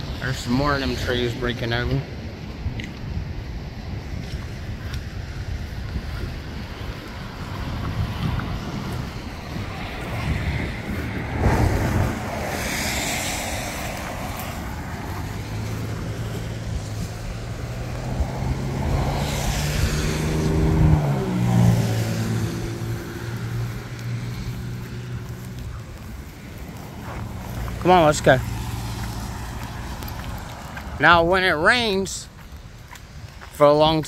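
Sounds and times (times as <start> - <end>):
tyres hissing on wet road: 3.7 - 33.6
heavy vehicle engine hum passing: 6.0 - 31.2.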